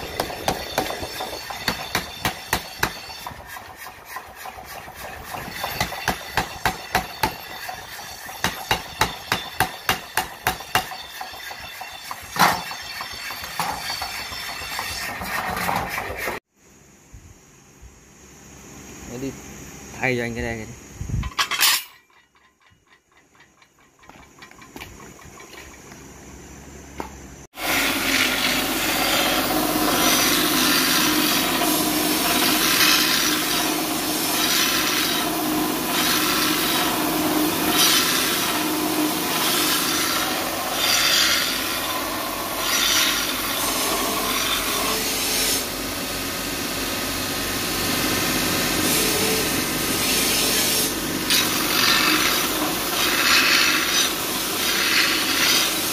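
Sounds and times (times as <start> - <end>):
belt grinder grinding steel: 0.0 - 16.4, 27.6 - 45.9, 48.0 - 55.9.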